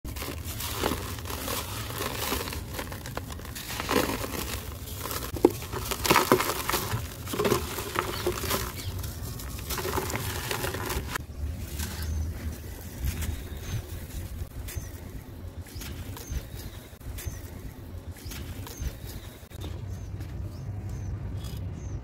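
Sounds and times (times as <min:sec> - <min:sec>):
block crumbling in hands: 0:00.1 - 0:11.2.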